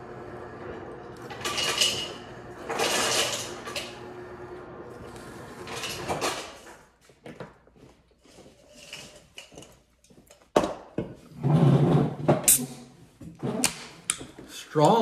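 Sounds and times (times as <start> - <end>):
ice clattering in glass: 1.3 - 3.9
soda can opening hiss: 12.5 - 12.8.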